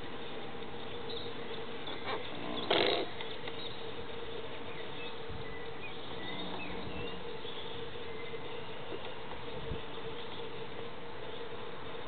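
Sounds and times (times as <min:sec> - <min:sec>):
electric motor humming: 0:00.4 - 0:12.0.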